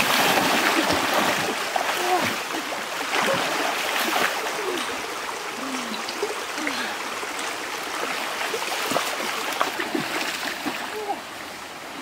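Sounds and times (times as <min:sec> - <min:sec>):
person wading through water: 0:00.0 - 0:11.4
stream running over rocks: 0:00.0 - 0:12.0.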